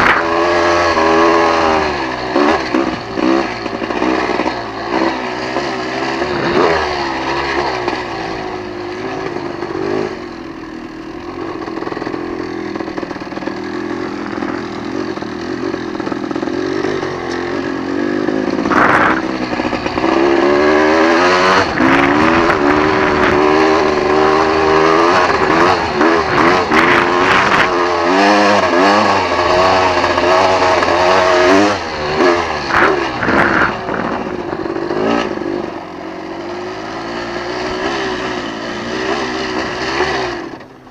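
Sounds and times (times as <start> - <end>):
off-road vehicle engine revving: 0.0 - 40.9
gusty crackling: 18.6 - 27.8, 32.6 - 35.2.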